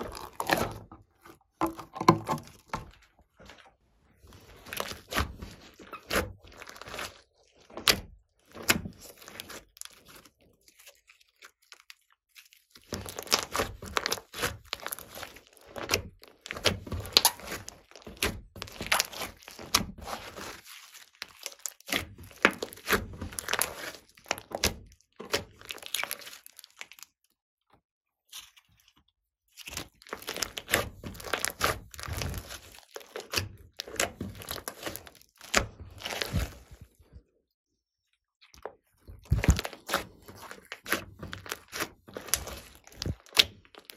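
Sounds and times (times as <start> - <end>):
hands squeezing wet slime: 0.0 - 27.4, 28.3 - 37.2, 38.4 - 43.9.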